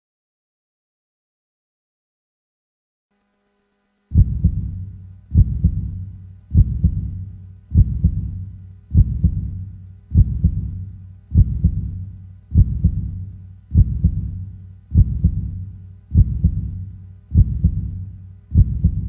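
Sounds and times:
low hum: 0:03.2 - 0:19.0
heartbeat thumps: 0:04.1 - 0:19.0.

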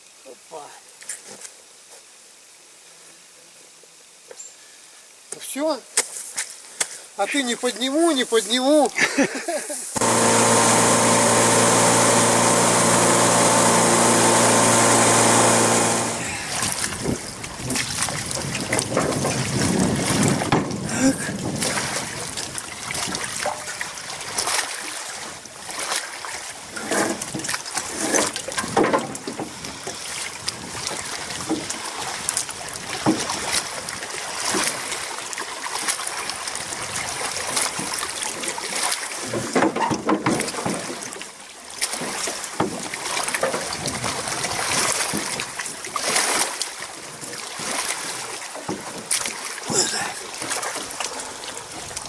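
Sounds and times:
shallow water splashing: 0:10.0 - 0:28.8, 0:40.3 - 0:52.0.

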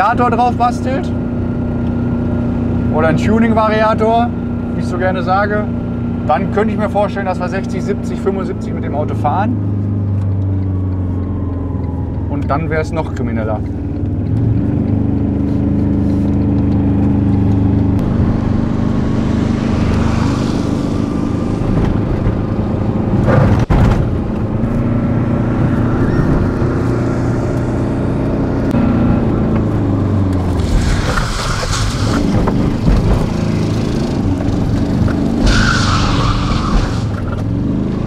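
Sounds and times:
diesel engine running: 0:00.0 - 0:38.0.

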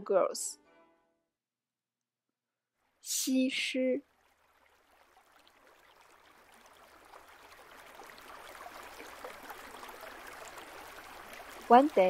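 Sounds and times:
running water: 0:02.8 - 0:12.0.

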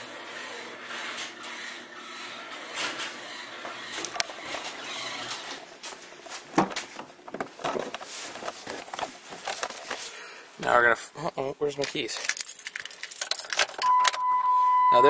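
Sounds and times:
footsteps: 0:03.7 - 0:10.1.

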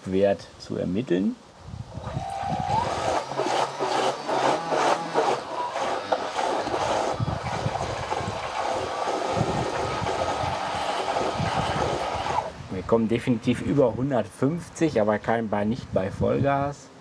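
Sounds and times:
electric motor whine: 0:01.9 - 0:12.6
water churning and splashing: 0:02.0 - 0:12.6.

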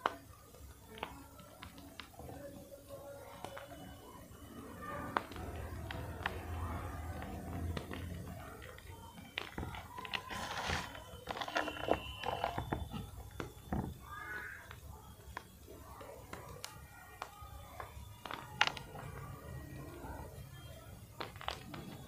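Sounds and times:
chalk crunching in hand: 0:10.1 - 0:12.5.

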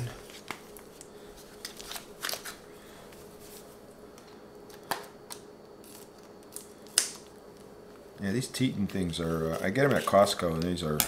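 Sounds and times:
scissors cutting plastic wrapping: 0:01.6 - 0:02.6, 0:08.7 - 0:11.0.

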